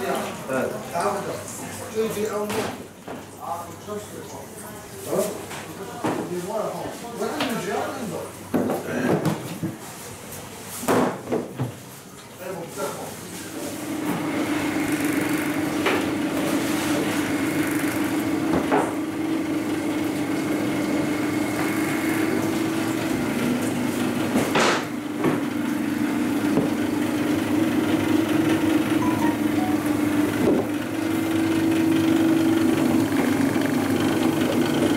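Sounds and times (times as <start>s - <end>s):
machine motor hum: 26.1s - 34.9s.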